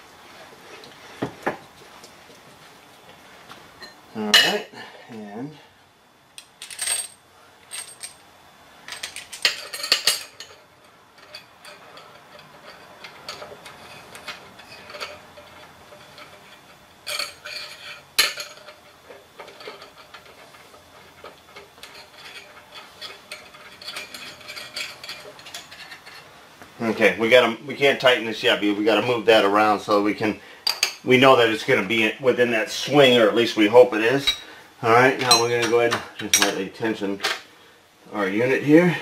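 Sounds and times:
metal parts clinking and tapping: 0:06.4 - 0:08.2, 0:08.9 - 0:26.3.

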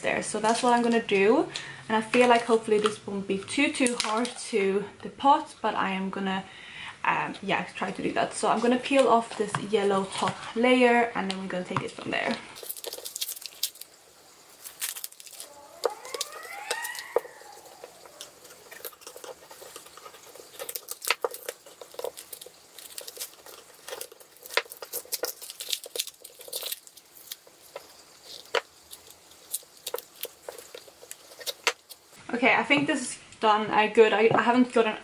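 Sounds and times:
cardboard tearing and crackling: 0:12.6 - 0:32.2.

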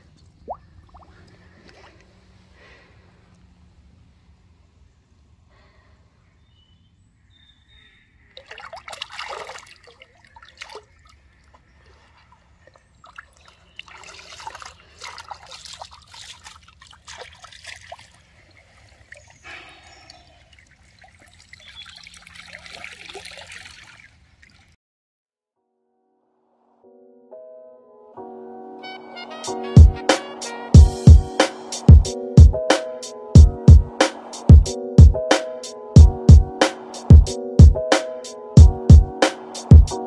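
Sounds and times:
water splashing and sloshing: 0:00.0 - 0:03.8, 0:08.3 - 0:24.8.

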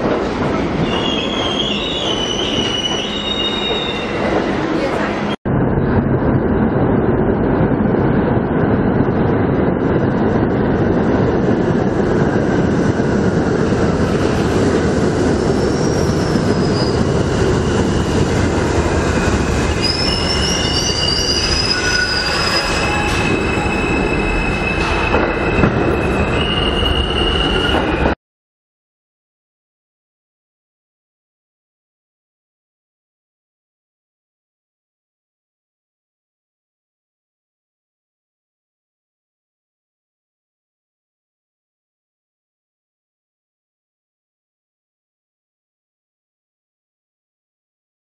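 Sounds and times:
subway train rumbling: 0:00.0 - 0:28.2
wheels and brakes squealing: 0:00.8 - 0:04.3, 0:15.5 - 0:18.3, 0:19.6 - 0:28.1.

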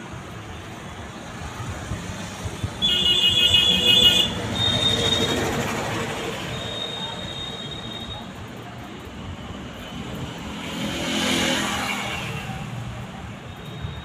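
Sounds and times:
vehicle going by: 0:10.2 - 0:12.3.

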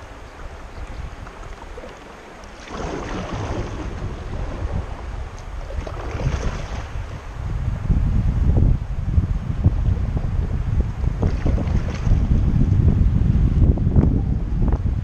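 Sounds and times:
water splashing against kayak hull: 0:00.0 - 0:07.4, 0:11.0 - 0:12.6
wind rumble on microphone: 0:00.0 - 0:15.0.

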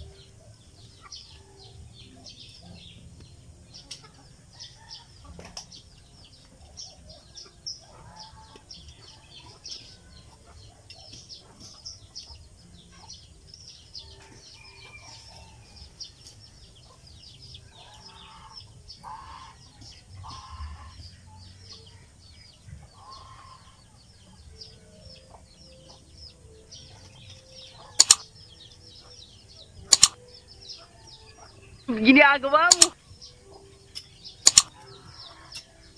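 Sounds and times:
chickens clucking: 0:00.0 - 0:35.9
sharp loud click: 0:28.0 - 0:28.3, 0:29.9 - 0:30.2, 0:32.7 - 0:33.0, 0:34.4 - 0:34.7.

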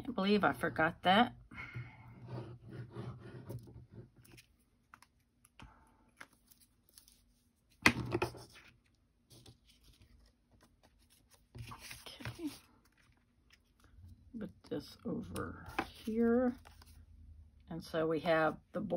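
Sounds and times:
paper rustling: 0:06.2 - 0:14.0.

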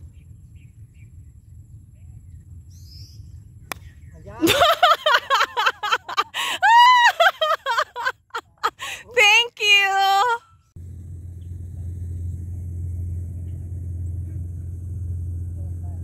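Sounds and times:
bird chirps: 0:00.0 - 0:04.3
faint low rumble: 0:00.0 - 0:04.4, 0:10.5 - 0:16.0
golf club striking ball: 0:03.7 - 0:04.0.

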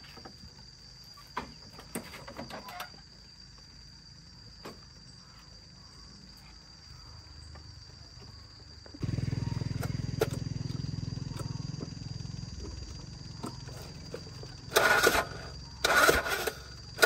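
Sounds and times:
high insect buzz: 0:00.0 - 0:17.0.

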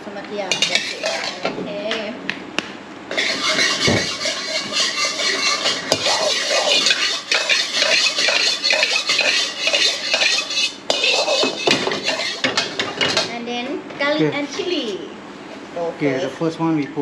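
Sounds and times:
metal spatula scraping a wok: 0:00.5 - 0:01.5, 0:03.1 - 0:13.3
hot oil hissing: 0:03.1 - 0:13.3.

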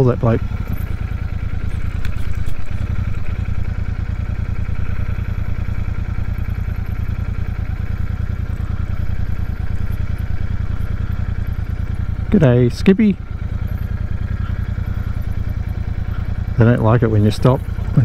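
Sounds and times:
motorcycle engine running: 0:00.0 - 0:18.0.

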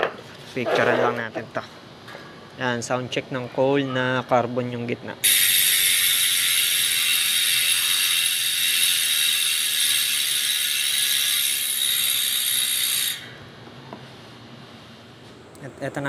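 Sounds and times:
bicycle hub ratcheting buzz: 0:05.2 - 0:13.4.

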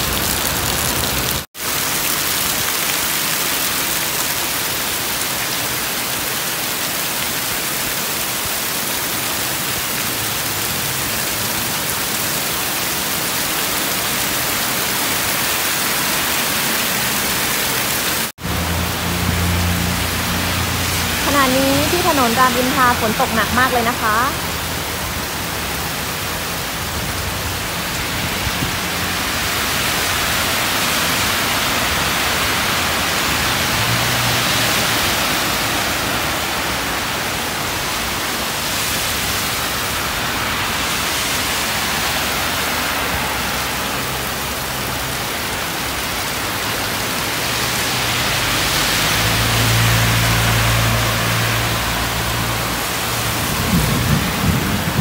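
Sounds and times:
cars passing through water: 0:00.0 - 0:55.0
heavy rain on road: 0:00.0 - 0:55.0.

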